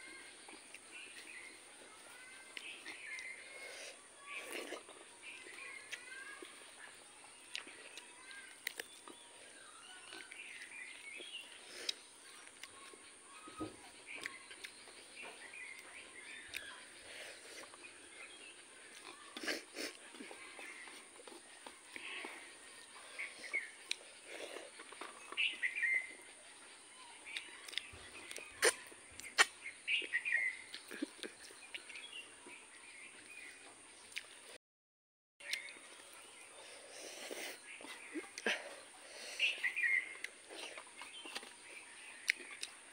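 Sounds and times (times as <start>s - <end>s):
birds chirping: 0.0s - 34.6s, 35.4s - 42.9s
chewing and sucking clicks: 0.4s - 13.0s, 14.1s - 26.4s, 27.3s - 32.6s, 34.1s - 34.4s, 39.4s - 42.9s
wet mouth smacks: 27.4s - 29.6s.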